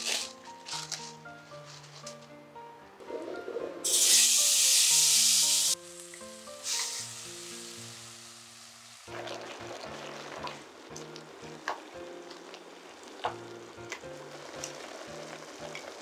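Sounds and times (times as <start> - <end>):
meat sizzling in a frying pan: 3.8 - 16.0.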